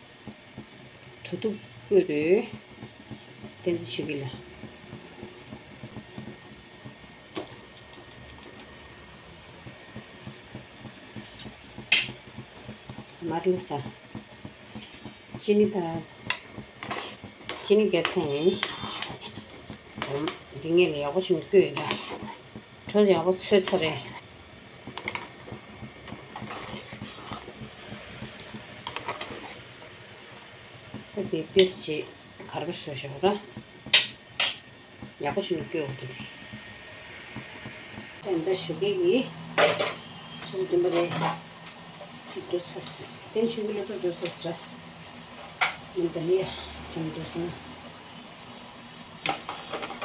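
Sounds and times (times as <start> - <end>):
kitchen background noise: 0.0 - 50.0
ladle tapping and scraping pot: 9.6 - 24.2, 24.8 - 31.9.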